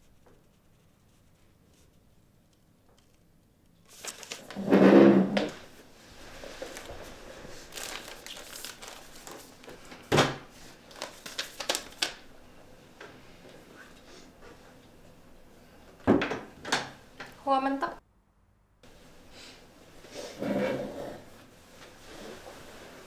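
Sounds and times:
doors and cupboards knocking: 0:16.1 - 0:16.9.

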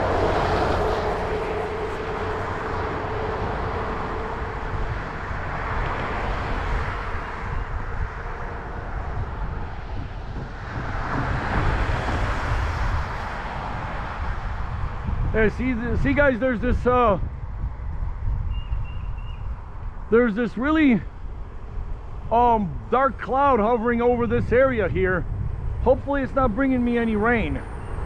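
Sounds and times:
cars passing on wet road: 0:00.0 - 0:15.3
bicycle rumble: 0:00.0 - 0:16.2.

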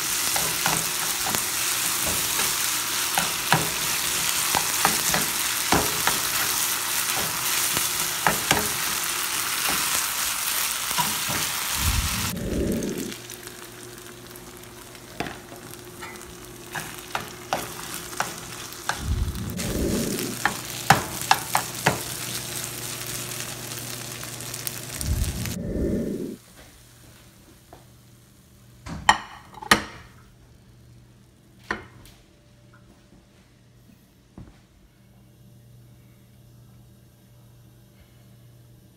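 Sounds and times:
rice sizzling in a skillet: 0:00.0 - 0:25.6.

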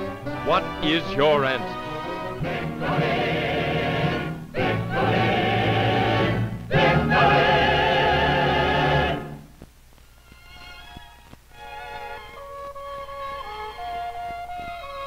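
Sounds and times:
choir singing held chords: 0:00.0 - 0:09.5.

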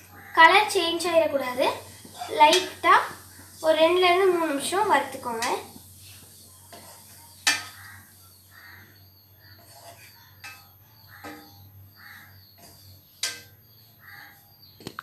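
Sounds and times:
spatula stirring coconut: 0:00.0 - 0:14.5
spatula tapping pan: 0:02.0 - 0:03.2, 0:06.6 - 0:08.1, 0:09.5 - 0:11.6, 0:12.4 - 0:13.7.

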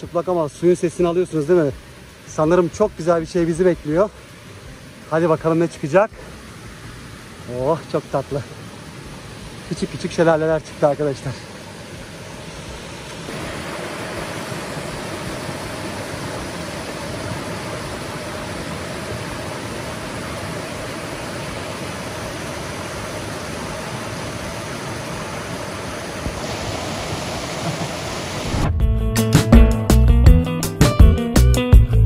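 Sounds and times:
stream splashing over rocks: 0:00.0 - 0:28.6.

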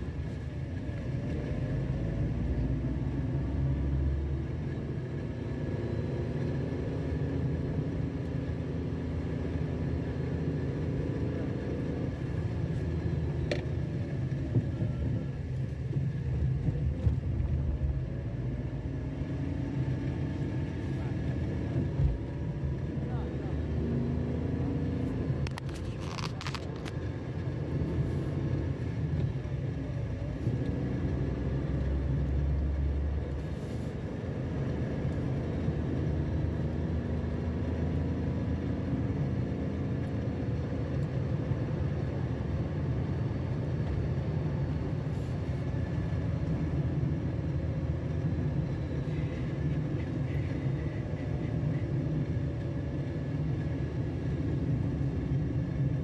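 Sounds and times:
steady low rumble: 0:12.0 - 0:24.4.

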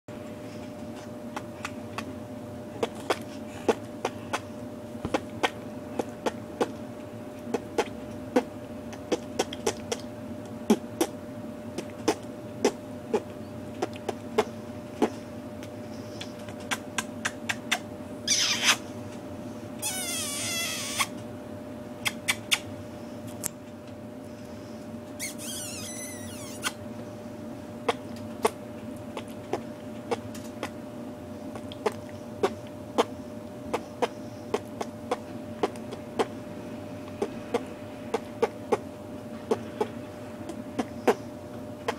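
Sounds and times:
faint steady hum: 0:00.1 - 0:41.9
mouth clicks and lip smacks: 0:02.8 - 0:04.5, 0:07.5 - 0:11.2, 0:11.8 - 0:18.8, 0:22.0 - 0:22.7, 0:27.9 - 0:30.8, 0:31.5 - 0:36.4, 0:39.5 - 0:41.2
high squeaky sounds: 0:19.8 - 0:21.1, 0:25.2 - 0:26.8.

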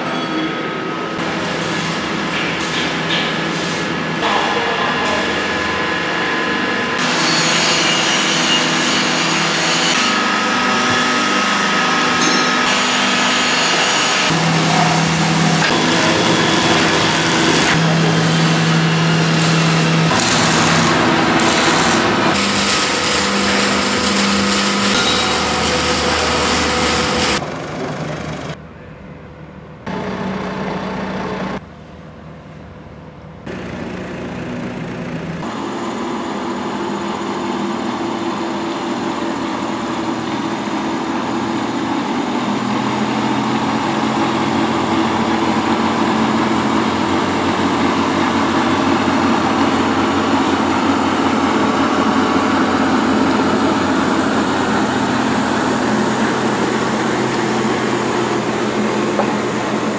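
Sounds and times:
workshop noise: 0:00.0 - 0:59.9
truck diesel engine running: 0:14.3 - 0:24.8, 0:33.5 - 0:59.9.

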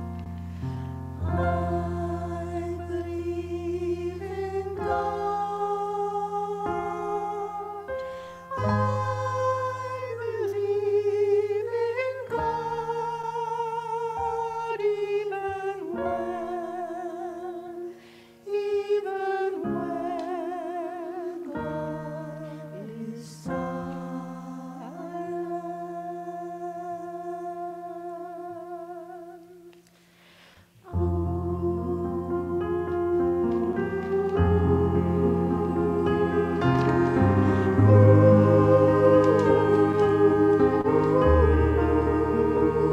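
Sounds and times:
choir singing a hymn: 0:00.0 - 0:29.8, 0:30.8 - 0:42.9
held low accompanying notes: 0:30.9 - 0:42.9.

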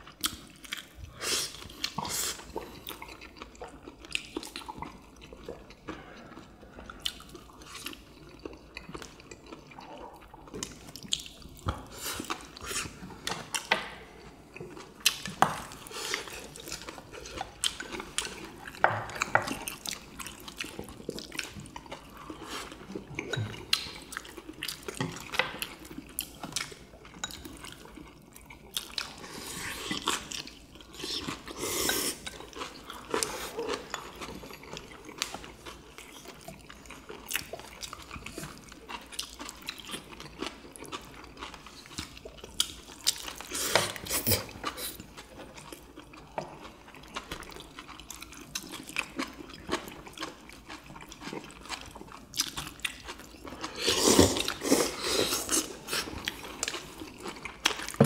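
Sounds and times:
chewing: 0:00.0 - 0:58.0
slurping from a bowl: 0:30.9 - 0:34.0, 0:53.5 - 0:56.5.

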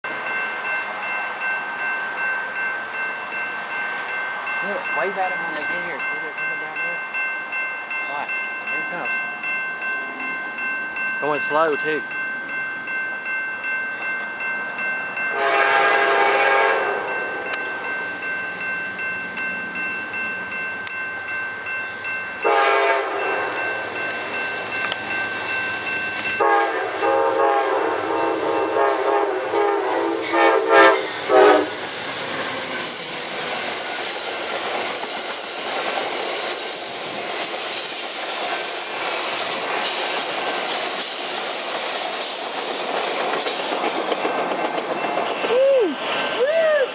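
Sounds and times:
crossing warning bell ringing: 0:00.0 - 0:46.4
train rumbling and clacking over rails: 0:00.0 - 0:46.8
locomotive air horn blasts: 0:15.3 - 0:17.1, 0:22.4 - 0:23.6, 0:26.4 - 0:31.8.

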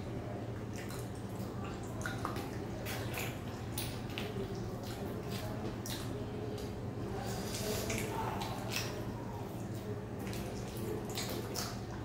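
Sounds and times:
squelchy clicks of eating: 0:00.6 - 0:06.8.

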